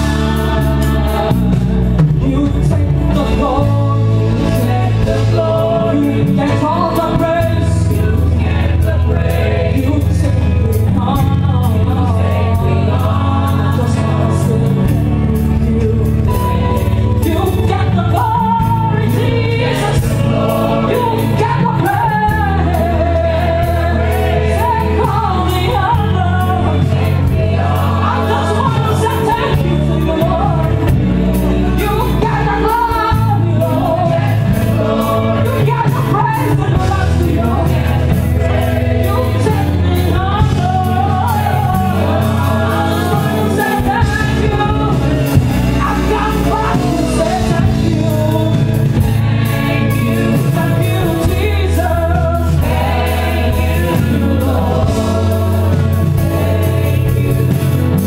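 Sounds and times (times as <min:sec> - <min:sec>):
choir singing: 0:00.0 - 0:15.6, 0:16.2 - 0:58.0
bass and drums: 0:00.0 - 0:58.0.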